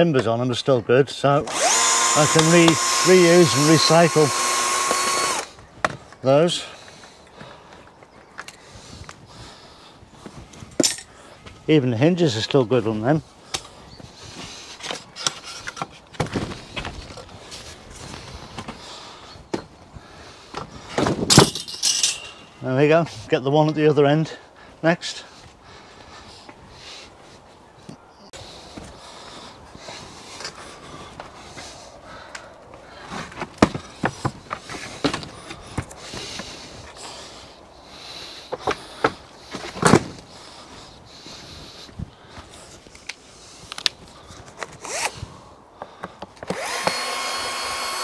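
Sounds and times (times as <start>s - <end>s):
wooden knocks and clunks: 15.8s - 17.2s.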